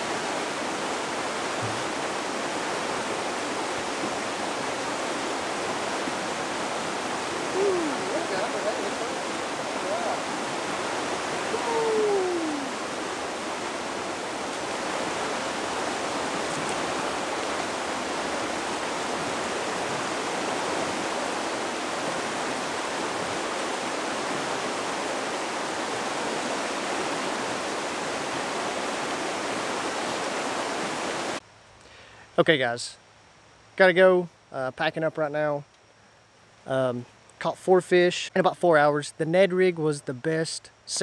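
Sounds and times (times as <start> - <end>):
river rushing over rocks: 0.0 - 31.4.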